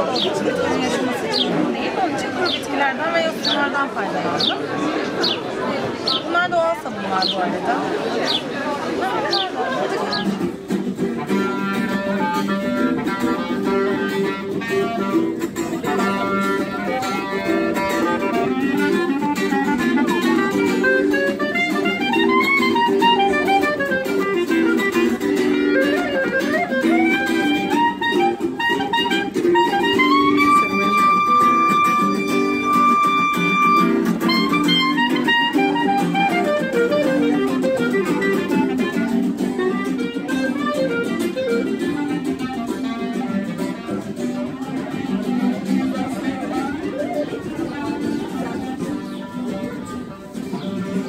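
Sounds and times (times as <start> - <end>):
acoustic guitar strumming: 0.0 - 7.6, 8.2 - 51.0
clarinet melody: 10.2 - 51.0.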